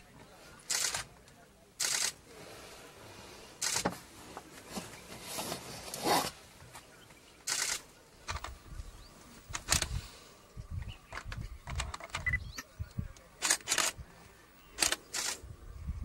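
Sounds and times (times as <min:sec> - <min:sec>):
camera shutters firing: 0:07.5 - 0:08.6, 0:13.4 - 0:14.0, 0:14.8 - 0:15.4.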